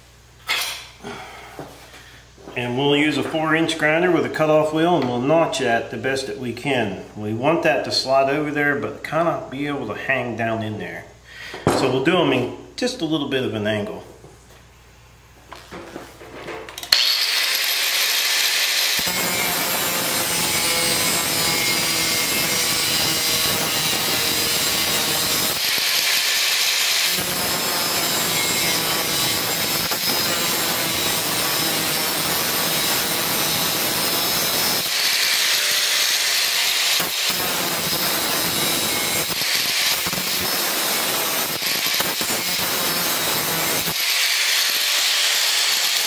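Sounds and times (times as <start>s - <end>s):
angle grinder cutting steel: 16.9s - 46.0s
grinder wheel whining freely: 16.9s - 46.0s.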